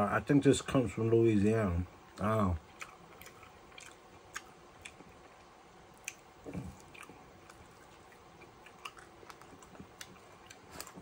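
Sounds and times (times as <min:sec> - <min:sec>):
person chewing food: 0:02.6 - 0:11.0.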